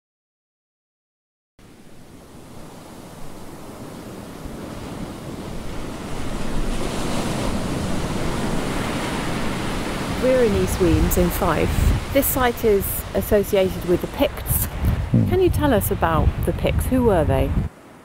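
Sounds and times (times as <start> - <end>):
wind on microphone: 10.1 - 17.7.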